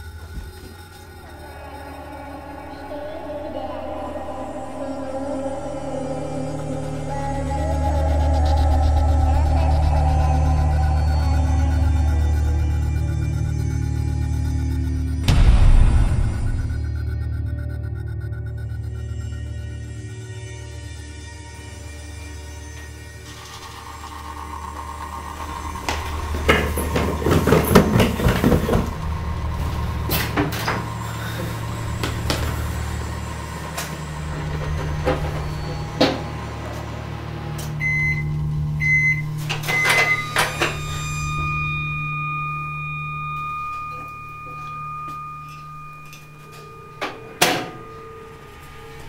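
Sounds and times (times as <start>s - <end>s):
microwave oven humming: 0.0s - 49.0s
microwave beeping: 22.8s - 49.0s
knocks and clatter: 25.9s - 29.2s.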